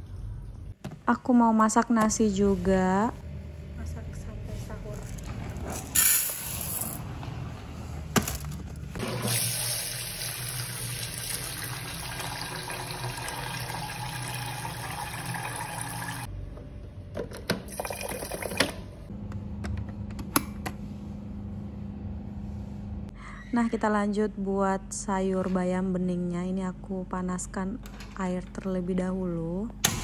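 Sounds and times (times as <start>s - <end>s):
tap water running into pot: 9.0s - 16.3s.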